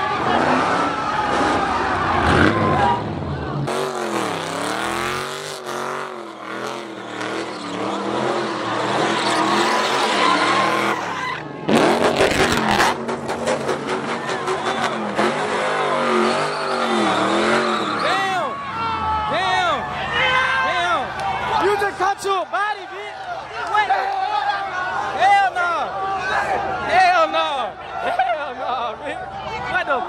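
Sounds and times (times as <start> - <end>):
tires spinning and skidding: 0.0 - 18.5
car engine revving: 0.1 - 18.4.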